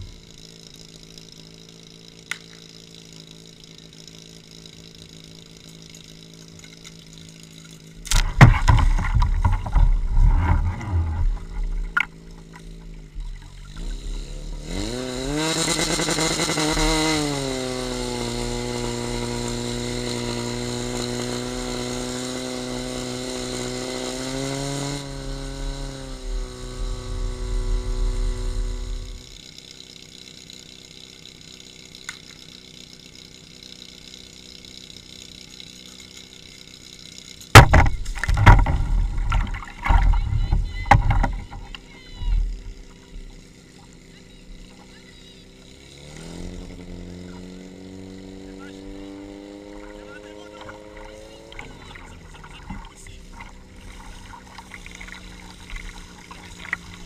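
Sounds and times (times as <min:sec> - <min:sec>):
small pump engine idling: 0:00.0 - 0:57.0
hoses splashing in water: 0:37.9 - 0:41.7, 0:50.6 - 0:57.0.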